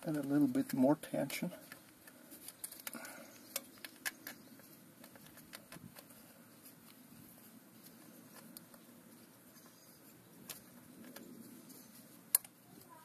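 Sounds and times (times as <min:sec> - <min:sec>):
small metal clicks: 0:00.0 - 0:06.2, 0:10.4 - 0:12.9.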